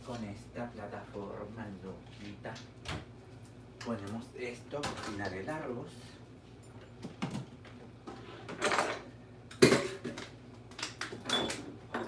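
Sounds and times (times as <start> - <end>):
pots and utensils clattering: 8.1 - 10.3.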